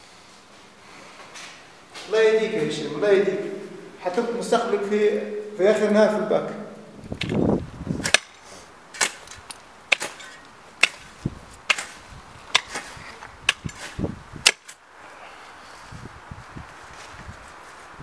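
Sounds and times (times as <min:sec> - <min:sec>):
faint steady hiss: 0:00.0 - 0:18.0
hoes chopping into soil: 0:08.0 - 0:14.8.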